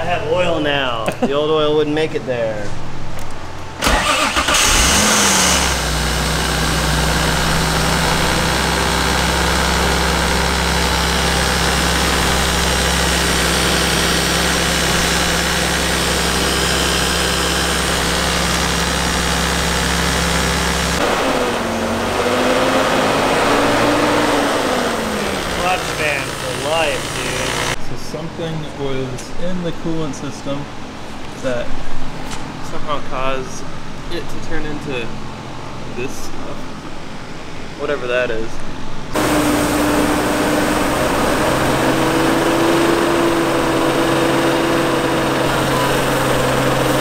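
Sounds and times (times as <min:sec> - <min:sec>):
car engine starting and idling: 0:03.7 - 0:27.8, 0:39.1 - 0:47.0.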